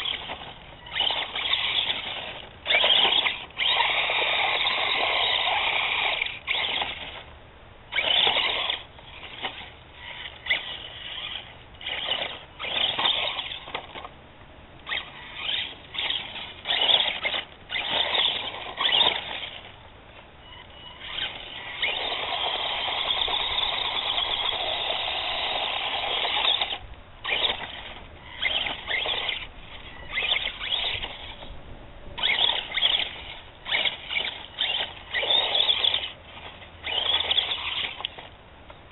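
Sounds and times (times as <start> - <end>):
toy truck electric motor whining: 0.0 - 7.3, 7.9 - 14.1, 14.8 - 19.8, 20.4 - 31.5, 32.2 - 38.9.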